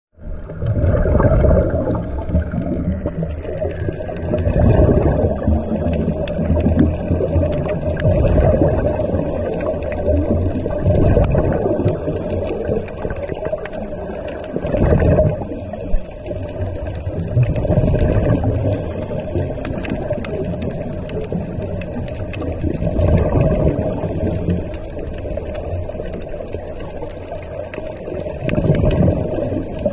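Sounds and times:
underwater rumble of moving water: 0:00.1 - 0:29.9
faint clicks: 0:05.4 - 0:15.1.

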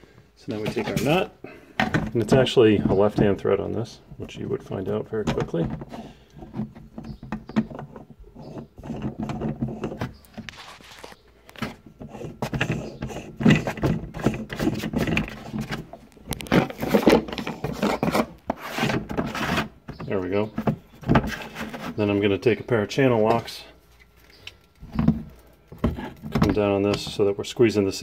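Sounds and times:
plastic nut scraping on threads: 0:04.4 - 0:22.2.

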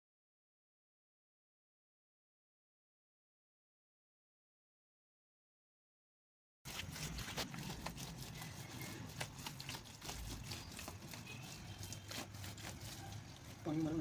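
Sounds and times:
hands scraping damp soil: 0:06.7 - 0:14.0.

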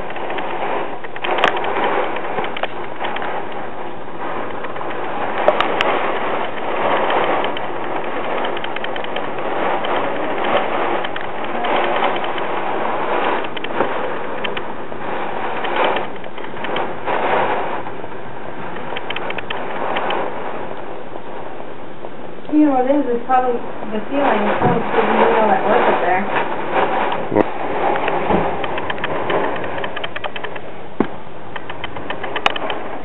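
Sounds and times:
rain against a window: 0:00.0 - 0:33.0
rain tapping on glass: 0:00.0 - 0:33.0.

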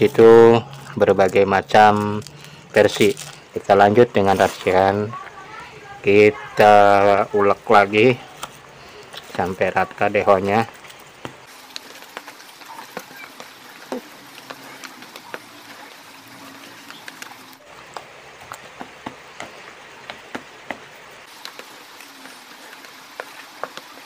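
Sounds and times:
faint steady hiss: 0:00.0 - 0:24.0.

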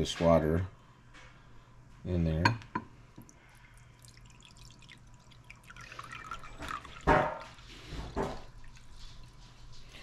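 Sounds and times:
water trickling and dripping: 0:03.2 - 0:09.3
glass knocks: 0:07.0 - 0:07.5.

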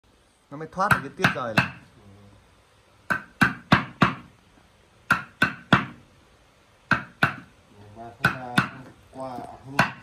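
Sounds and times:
wooden mallet striking chisel: 0:00.8 - 0:01.9, 0:03.1 - 0:04.3, 0:05.1 - 0:06.0, 0:06.9 - 0:07.5, 0:08.2 - 0:09.0, 0:09.7 - 0:10.0.

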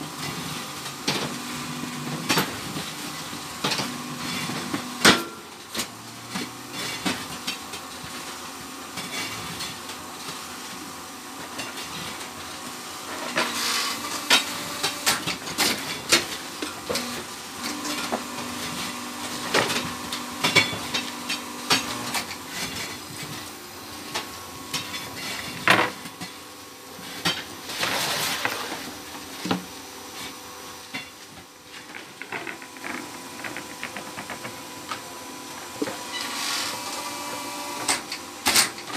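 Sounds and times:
machine motor hum: 0:13.1 - 0:24.7, 0:31.8 - 0:38.9.

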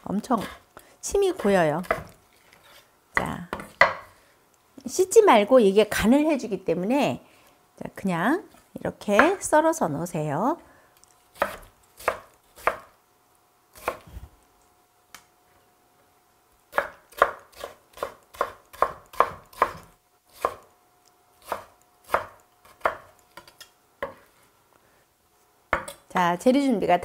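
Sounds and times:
knife chopping on wooden board: 0:01.4 - 0:02.1, 0:03.2 - 0:04.1, 0:11.4 - 0:12.9, 0:16.7 - 0:20.6, 0:21.4 - 0:24.3, 0:25.7 - 0:26.0.

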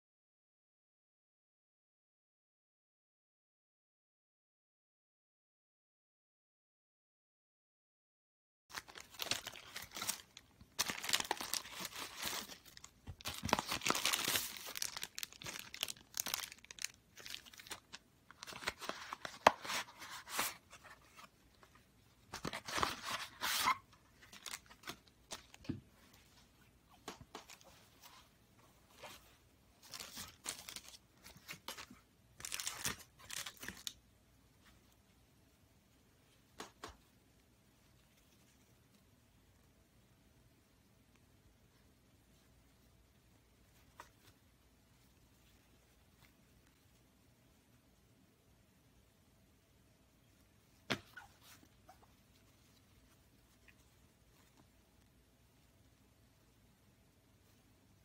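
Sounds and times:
plastic bag crinkling and tearing: 0:08.7 - 0:19.6, 0:22.4 - 0:25.6, 0:29.8 - 0:34.0.

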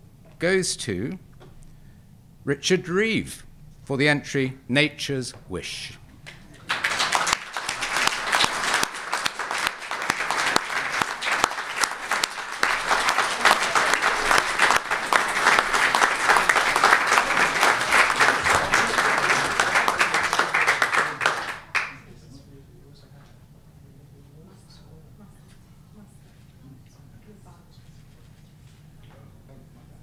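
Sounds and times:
audience applauding: 0:06.3 - 0:22.1.

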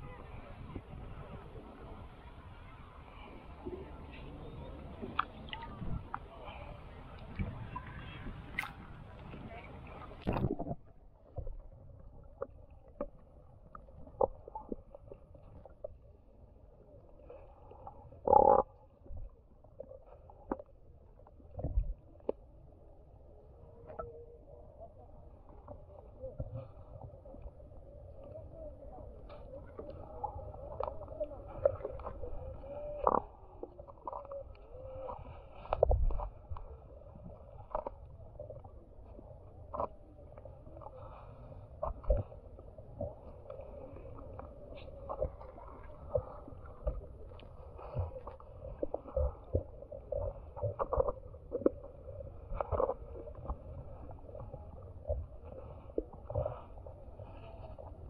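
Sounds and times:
low underwater rumble: 0:00.0 - 0:58.0.

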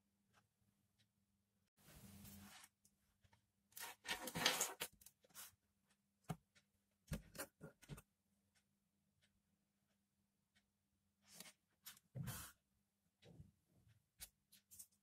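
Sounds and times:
wires rustling and rubbing: 0:03.8 - 0:05.5.

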